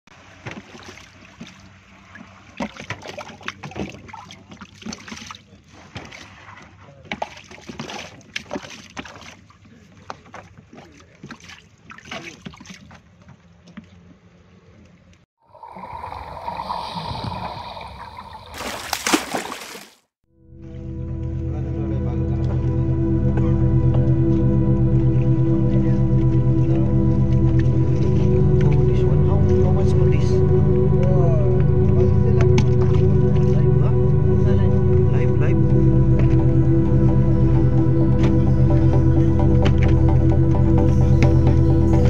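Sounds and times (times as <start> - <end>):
water splashing in a tub: 0.1 - 13.2, 15.4 - 20.1
logo sound: 20.4 - 42.0
steady low hum: 20.5 - 42.0.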